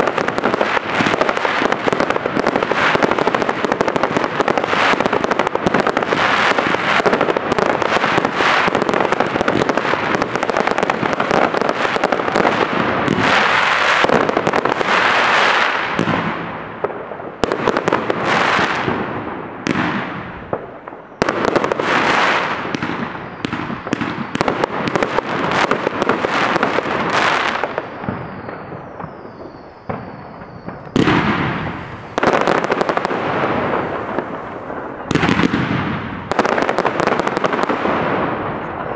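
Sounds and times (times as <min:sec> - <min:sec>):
fireworks bangs and crackling: 0:00.0 - 0:38.9
falling firework whistle: 0:21.0 - 0:36.7.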